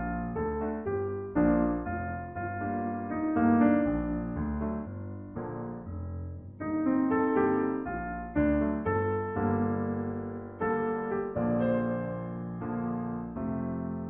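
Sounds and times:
slow piano music: 0.0s - 14.0s.

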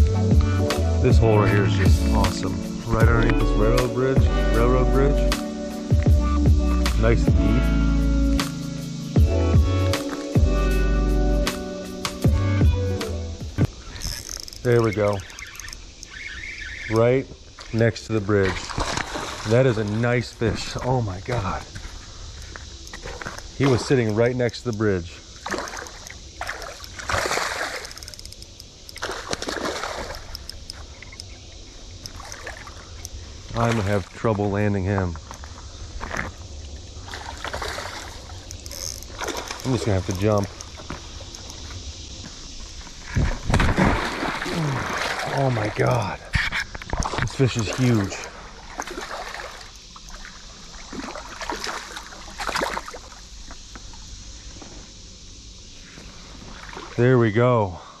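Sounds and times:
river water splashing: 8.3s - 10.8s, 13.6s - 57.3s
fish splashing in water: 18.4s - 20.0s, 25.4s - 28.2s, 28.9s - 30.8s, 37.0s - 40.6s, 43.4s - 45.9s, 47.0s - 53.3s.

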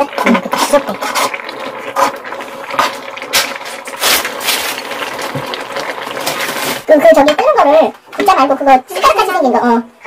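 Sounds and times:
metal ladle scraping a pan: 0.2s - 4.8s.

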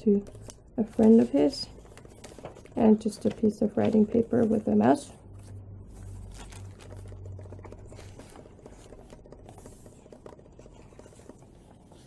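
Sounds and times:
paper pages rustling: 0.2s - 12.0s.

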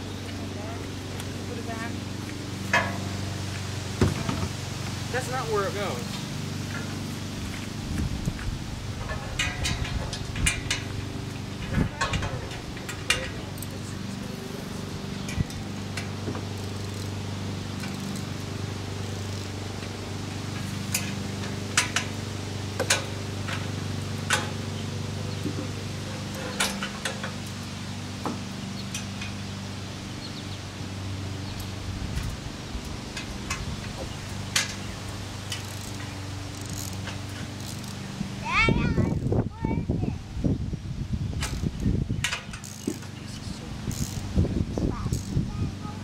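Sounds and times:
metal tubes clinking: 9.0s - 22.2s.

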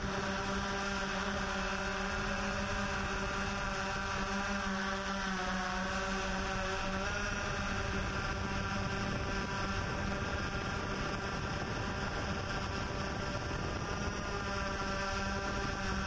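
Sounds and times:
drone propellers whirring: 0.0s - 16.0s.

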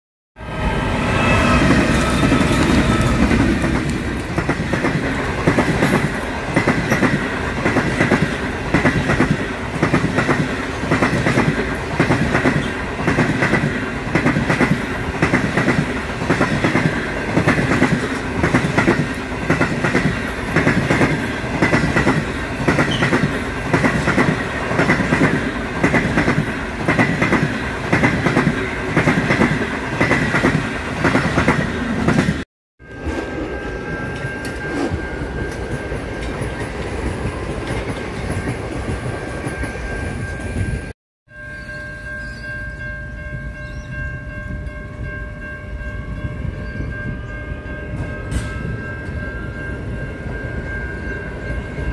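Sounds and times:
diesel locomotive engines: 0.4s - 51.9s
train wheels clickety-clack: 1.6s - 32.4s, 34.1s - 40.9s, 48.0s - 49.2s.

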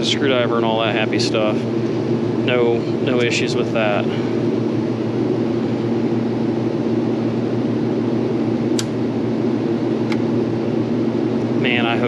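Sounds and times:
blower humming: 0.0s - 12.0s
sharp click: 8.7s - 9.0s.

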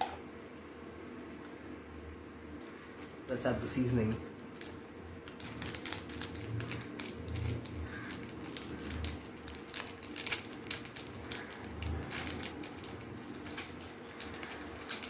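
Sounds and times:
seasoning packet crinkling: 4.0s - 15.0s.

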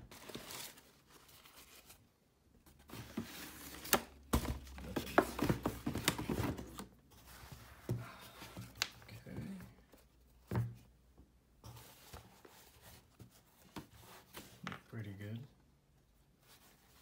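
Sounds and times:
tissue paper rustling: 0.0s - 2.1s
cardboard box being handled: 2.7s - 9.7s.

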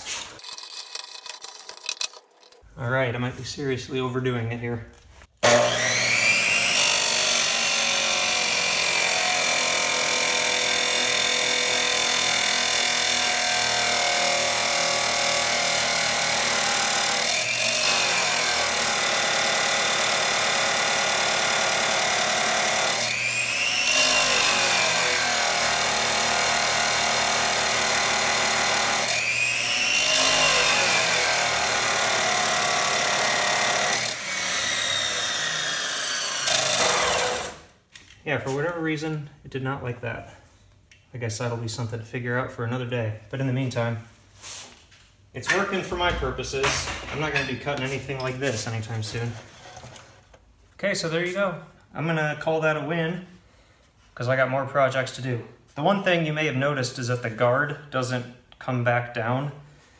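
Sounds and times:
chop saw grinding steel: 5.4s - 37.7s.

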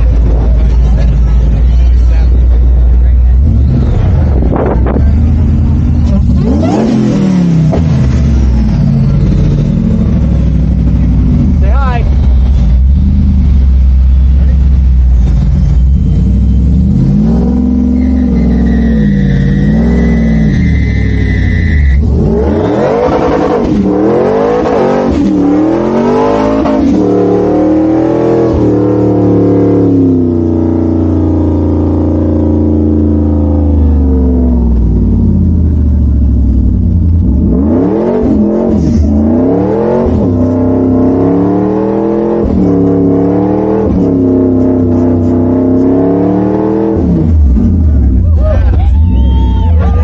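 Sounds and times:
engine revving hard: 3.3s - 12.0s, 16.1s - 35.7s, 36.8s - 48.2s.

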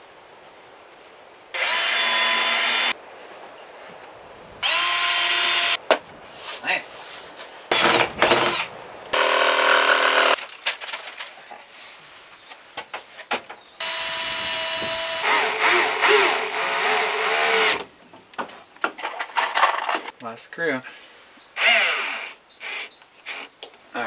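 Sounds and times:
power drill driving screws: 1.6s - 2.9s, 4.6s - 5.8s, 7.7s - 10.4s, 13.8s - 17.9s, 21.6s - 23.5s.

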